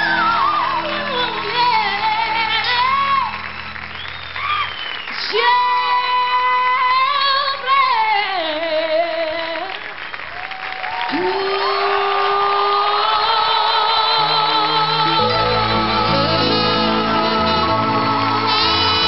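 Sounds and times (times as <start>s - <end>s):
woman singing a slow ballad: 0.0s - 3.4s, 5.2s - 9.8s, 11.1s - 17.7s
backing band: 0.0s - 5.3s, 14.2s - 19.0s.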